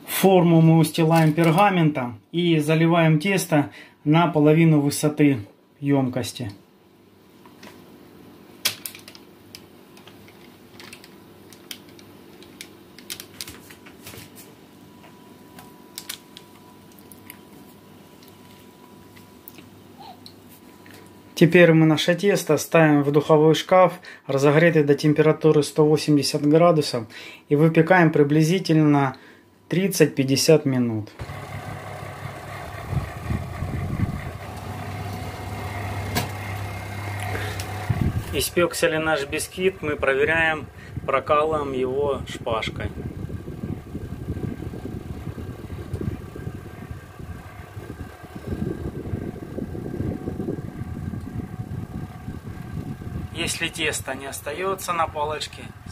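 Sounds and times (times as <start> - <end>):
oven fan humming: 31.2 - 55.9.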